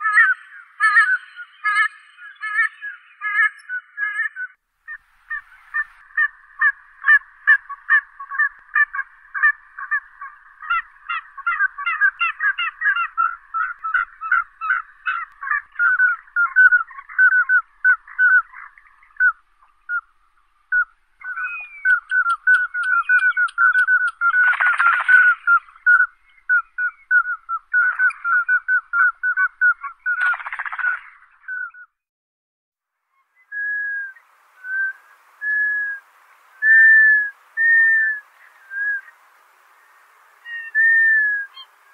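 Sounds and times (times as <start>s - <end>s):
duck piping calls: 4.9s - 20.0s, 20.7s - 31.1s.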